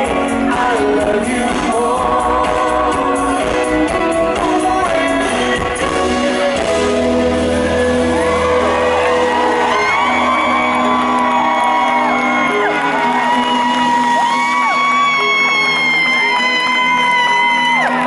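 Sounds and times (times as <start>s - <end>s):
live pop band with vocals: 0.0s - 18.0s
audience whooping and shouting: 7.3s - 18.0s.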